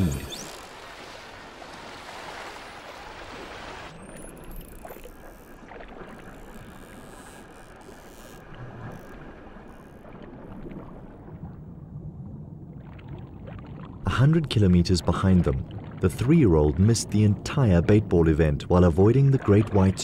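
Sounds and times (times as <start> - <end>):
waves splashing: 0.0 - 11.5, 14.1 - 20.0
muffled underwater wash: 8.4 - 20.0.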